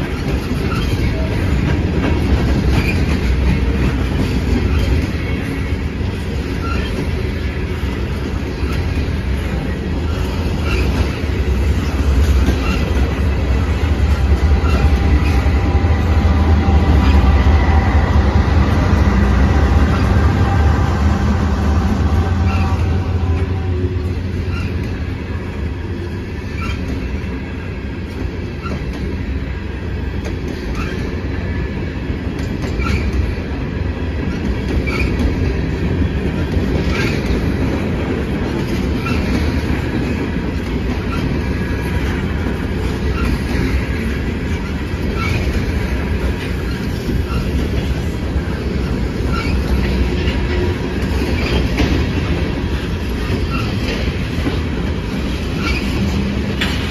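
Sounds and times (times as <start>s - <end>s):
diesel locomotive engine hum: 0.0s - 56.9s
freight cars rumbling past: 8.9s - 27.1s
wheels clacking over rail: 34.2s - 56.9s.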